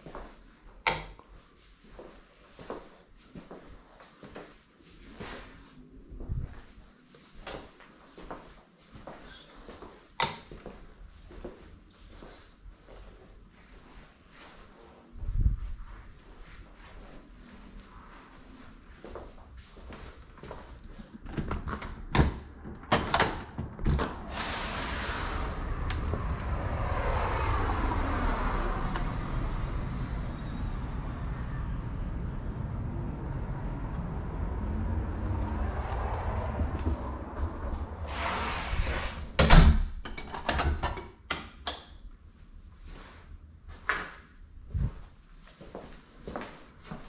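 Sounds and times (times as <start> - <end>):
rolling rumble: 23.9 - 39.4
rushing outdoor noise: 24.0 - 39.4.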